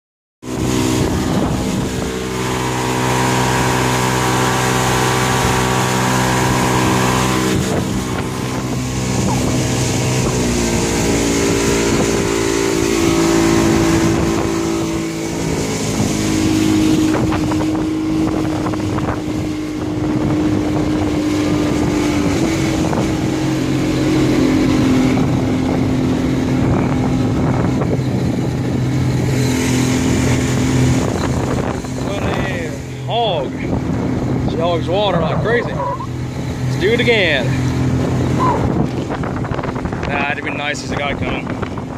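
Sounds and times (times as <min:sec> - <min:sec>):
outboard motor at full throttle: 0:00.4 - 0:41.9
water rushing: 0:00.4 - 0:41.9
wind noise on microphone: 0:00.4 - 0:41.9.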